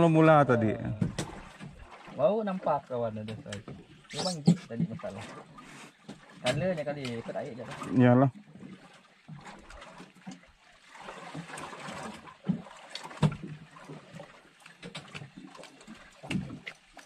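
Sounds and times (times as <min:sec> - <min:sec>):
water lapping against boat: 0:00.0 - 0:17.0
dull knocks on hull: 0:00.8 - 0:01.8, 0:12.4 - 0:13.6.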